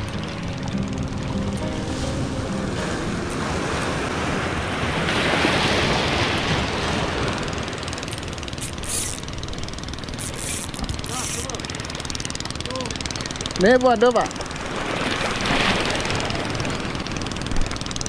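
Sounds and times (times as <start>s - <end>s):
waves breaking against rocks: 3.4s - 8.0s, 14.3s - 17.8s.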